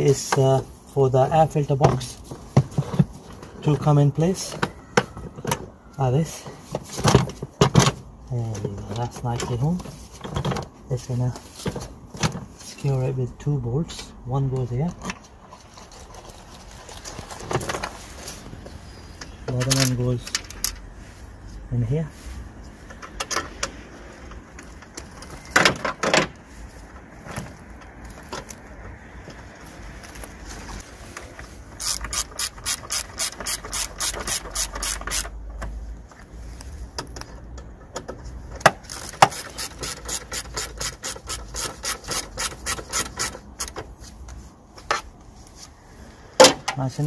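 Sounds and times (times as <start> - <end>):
hand ratchet clicking: 31.8 - 35.4, 38.9 - 43.8.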